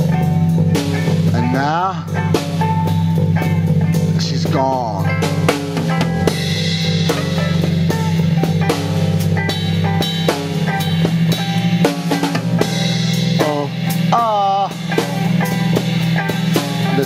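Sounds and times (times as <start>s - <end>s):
drum kit steady beat: 0.0s - 17.0s
held bass notes: 0.0s - 17.0s
pitch-bending melody line: 0.0s - 17.0s.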